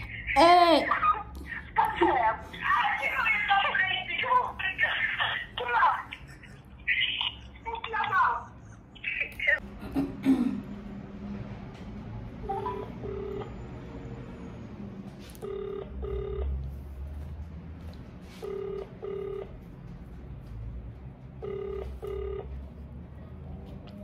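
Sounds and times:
telephone ringback tone: 12.6s - 13.5s, 15.4s - 16.6s, 18.4s - 19.5s, 21.4s - 22.6s.

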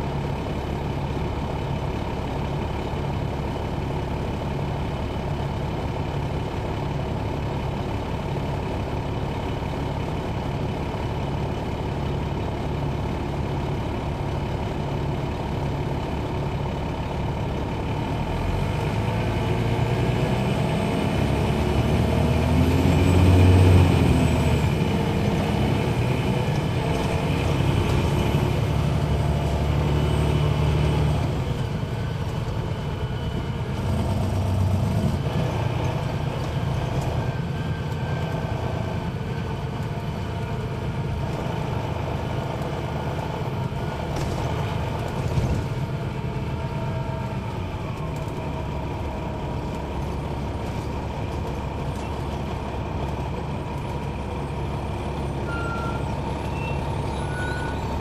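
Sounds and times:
diesel coach engine revving: 17.7s - 58.0s.

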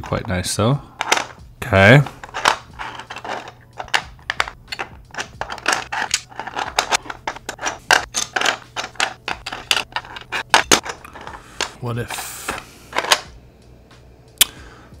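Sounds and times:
plastic pieces scraping: 2.0s - 11.8s, 12.4s - 13.3s
plastic pieces clicking: 2.2s - 11.8s.

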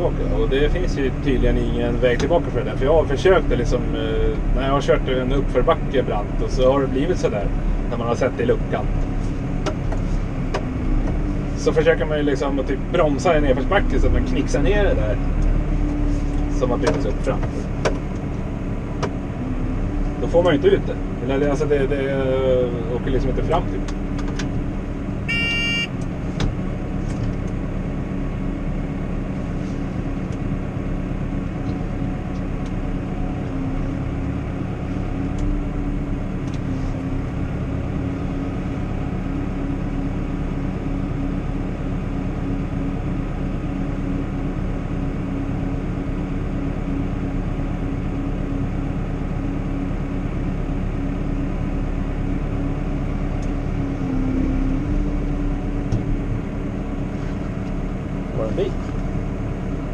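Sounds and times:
tractor engine droning: 0.0s - 59.9s
short electronic beep: 25.3s - 26.0s.

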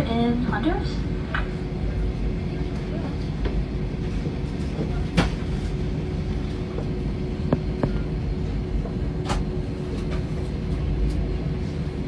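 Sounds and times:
airliner cabin rumble and hum: 0.0s - 12.0s.

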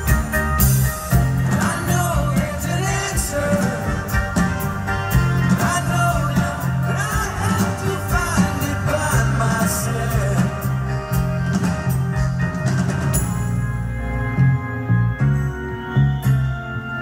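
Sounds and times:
live rock band playing: 0.0s - 17.0s
people singing: 1.4s - 4.8s, 5.4s - 11.0s.

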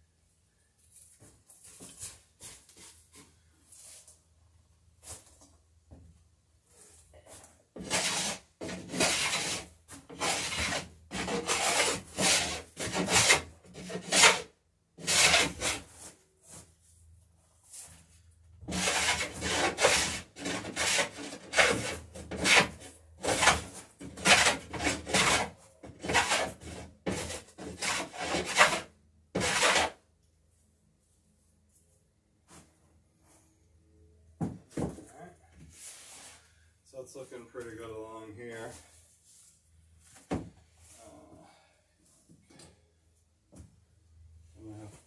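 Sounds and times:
hand plane cutting wood: 7.8s - 15.8s, 18.6s - 30.0s.

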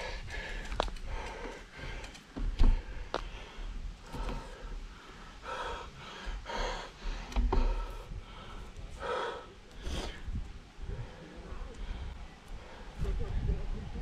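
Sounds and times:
heavy breathing: 0.0s - 13.2s
wind rumble on microphone: 9.8s - 14.0s.

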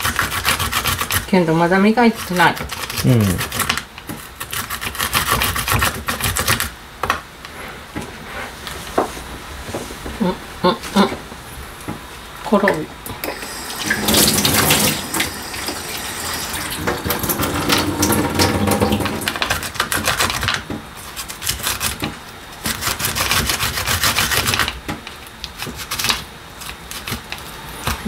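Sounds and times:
garlic scraping on a grater: 0.0s - 1.3s, 2.0s - 6.7s, 17.4s - 24.8s, 25.5s - 27.3s.

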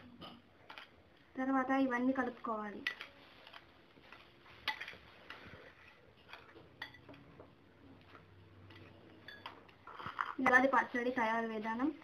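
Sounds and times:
spoon clinking against bowl: 6.8s - 7.2s, 8.7s - 9.6s.

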